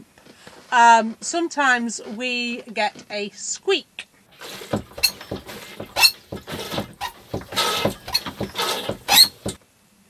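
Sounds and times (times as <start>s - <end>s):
manual toilet pump strokes: 4.4s - 9.6s
pump squeaking: 4.4s - 9.6s.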